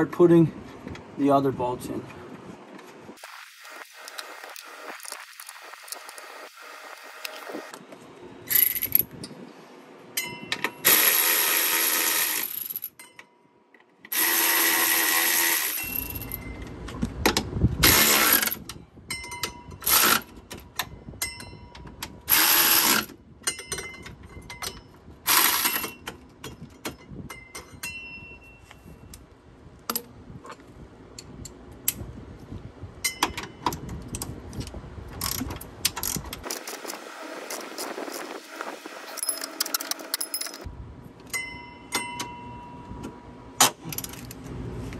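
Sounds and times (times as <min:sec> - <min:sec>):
power tool driving bolts: 0:10.6 - 0:12.8, 0:14.1 - 0:16.4, 0:17.8 - 0:18.7, 0:19.8 - 0:20.6, 0:22.3 - 0:23.2, 0:25.2 - 0:26.2
metal clinks: 0:15.8 - 0:16.6.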